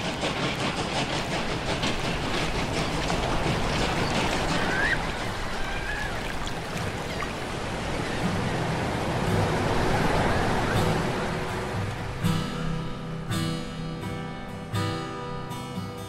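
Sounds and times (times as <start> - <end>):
ocean surf washing onto beach: 0.0 - 15.6.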